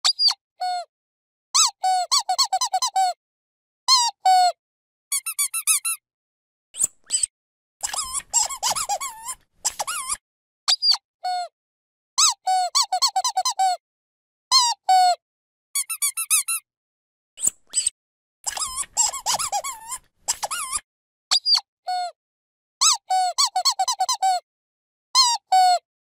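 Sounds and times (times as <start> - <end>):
dog squeaky toy squeaking: 1.6 - 3.2, 5.1 - 6.0, 7.1 - 11.0, 12.2 - 13.8, 15.8 - 16.6, 18.5 - 21.6, 22.8 - 24.4.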